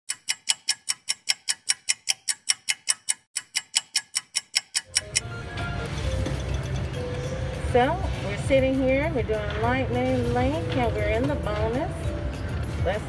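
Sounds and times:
sharp high clock-like ticks: 0.1 - 5.2.

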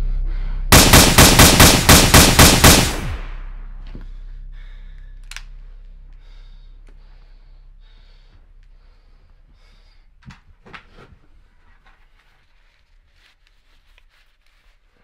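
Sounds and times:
faint breathing: 0.0 - 0.7, 3.9 - 11.7
low rumbling drone: 0.0 - 10.1.

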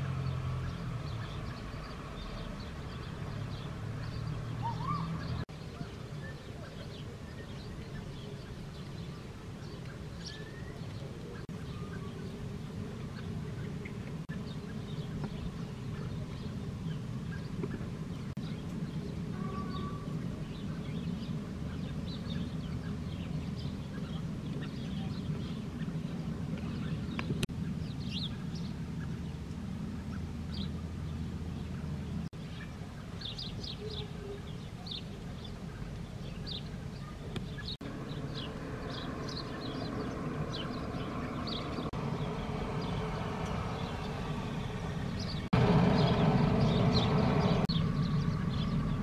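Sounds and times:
birds chirping: 0.0 - 49.0
steady low rumble: 35.2 - 49.0.

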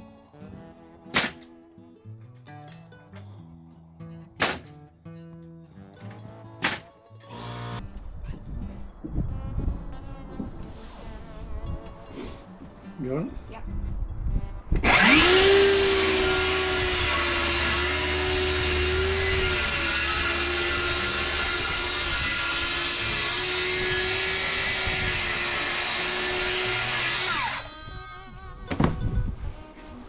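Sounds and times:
circular saw cutting wood: 14.8 - 27.8.

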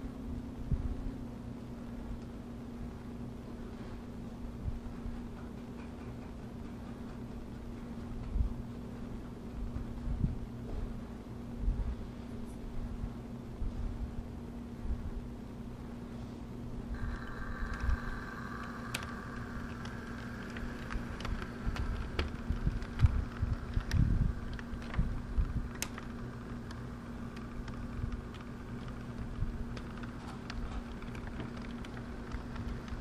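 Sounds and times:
faint motor whine: 0.0 - 33.0
steady hum: 0.0 - 33.0
model train wheels clicking over rail joints: 5.2 - 8.3, 16.9 - 33.0
model train rumble: 16.9 - 33.0.

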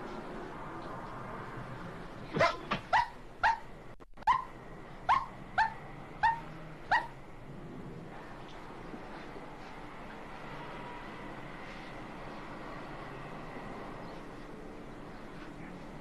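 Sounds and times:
dog barking: 2.4 - 4.5, 5.1 - 7.2.

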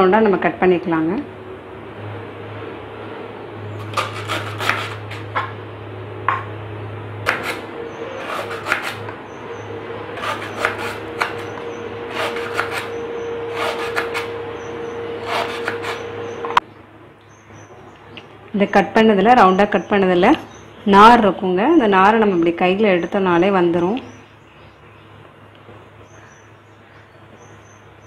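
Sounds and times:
steady low hum: 0.0 - 28.0
knife sawing through stem: 3.8 - 5.3, 7.3 - 9.1, 10.1 - 14.3, 15.2 - 16.2.

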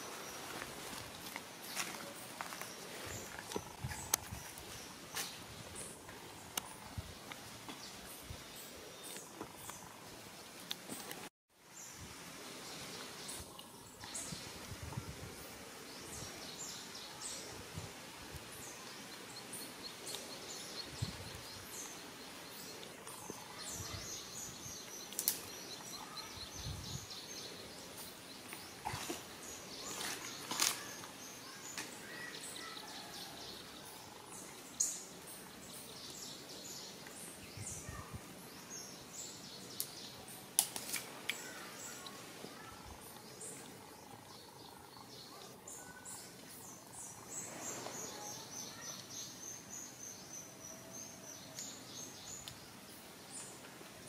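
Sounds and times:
birds chirping: 18.5 - 53.8.

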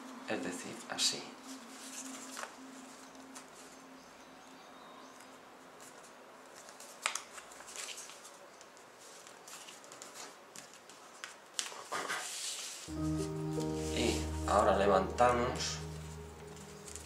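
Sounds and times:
paper rustling: 0.7 - 3.8, 5.8 - 17.0
paper crease crackle: 1.4 - 3.8, 5.2 - 14.7, 15.7 - 17.0.

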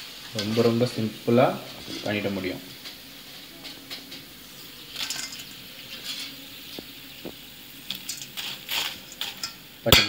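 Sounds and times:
fried florets rattling in colander: 4.9 - 6.4.

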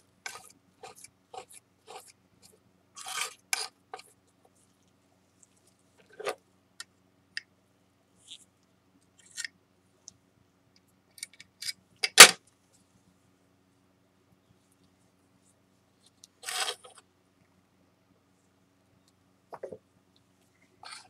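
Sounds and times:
spatula and tools clicking and scraping: 0.2 - 6.4, 16.0 - 17.0.

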